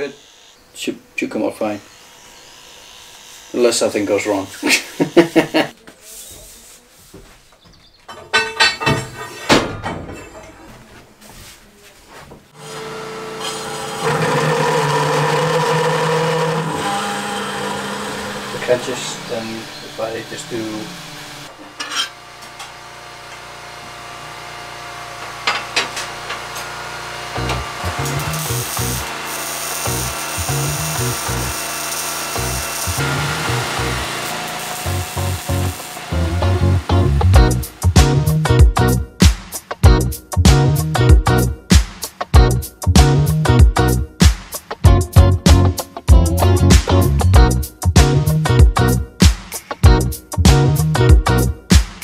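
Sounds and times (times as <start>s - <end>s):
people laughing: 4.6s - 5.8s
steel bars clanking: 8.1s - 10.6s, 21.8s - 22.7s
music with rhythmic bass beat: 34.9s - 52.0s.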